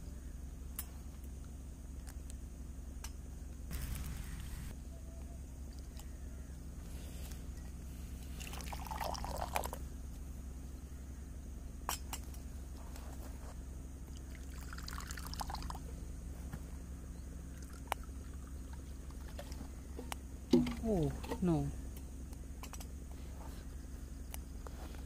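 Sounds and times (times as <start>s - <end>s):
liquid pouring: 8.3s - 9.8s, 14.2s - 15.8s.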